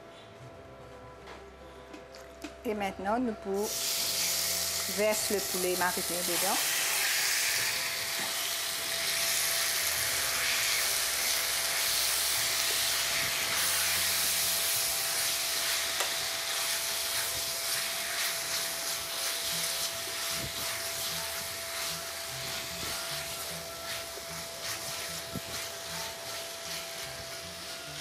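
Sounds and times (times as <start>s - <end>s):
chicken sizzling in a frying pan: 3.6s - 28.0s
spatula scraping a pan: 17.0s - 28.0s.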